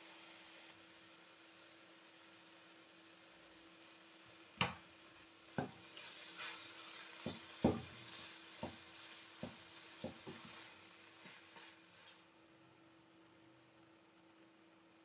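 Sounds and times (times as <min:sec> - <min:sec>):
wooden spatula knocking on pan: 0:04.6 - 0:04.8, 0:05.6 - 0:05.8, 0:07.2 - 0:10.6
soft scraping in pan: 0:05.6 - 0:12.3.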